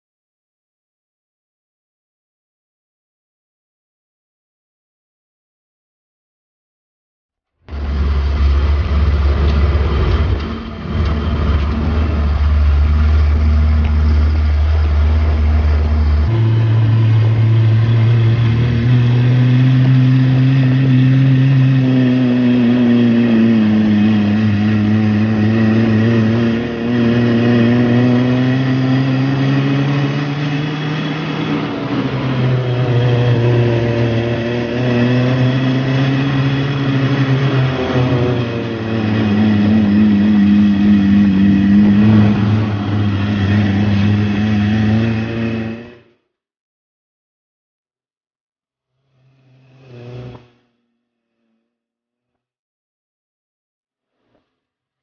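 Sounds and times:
vehicle engine running: 0:07.7 - 0:46.0.

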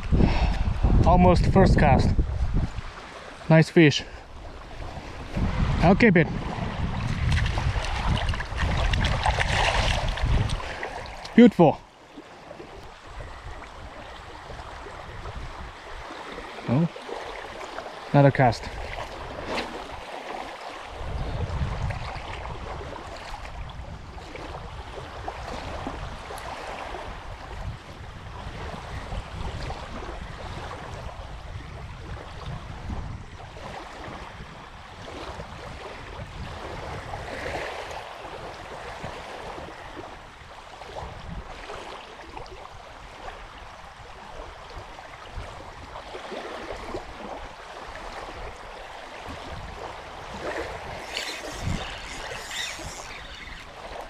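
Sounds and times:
wind rumbling on microphone: 0:00.0 - 0:54.0
small waves lapping on gravel: 0:41.6 - 0:54.0.

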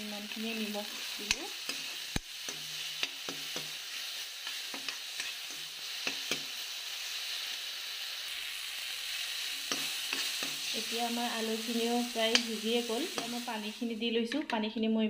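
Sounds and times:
vegetables sizzling in oil: 0:00.0 - 0:14.6.

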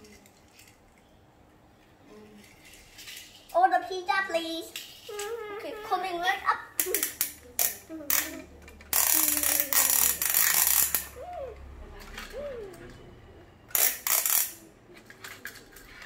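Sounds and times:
plastic toys rattling: 0:00.0 - 0:01.0, 0:02.1 - 0:05.4, 0:06.8 - 0:11.3, 0:13.7 - 0:16.0
child humming: 0:05.1 - 0:06.2, 0:07.8 - 0:10.2, 0:11.2 - 0:11.6.

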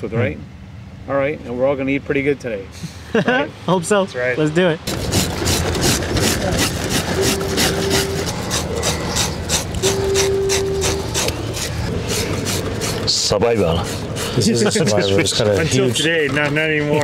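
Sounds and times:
steady background tone: 0:04.8 - 0:15.2
fish scaler scraping scales: 0:04.9 - 0:16.5.

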